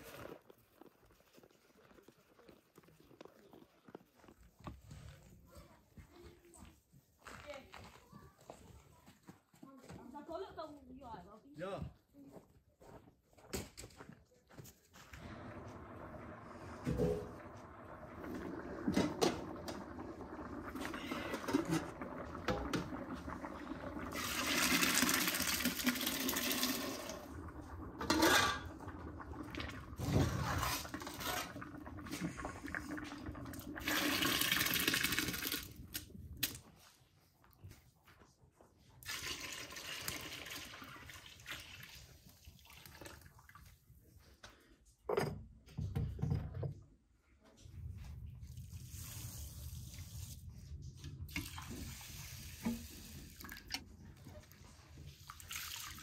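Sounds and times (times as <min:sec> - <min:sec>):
water pouring into metal pot: 0:15.1 - 0:36.6, 0:39.0 - 0:43.8, 0:51.2 - 0:56.0.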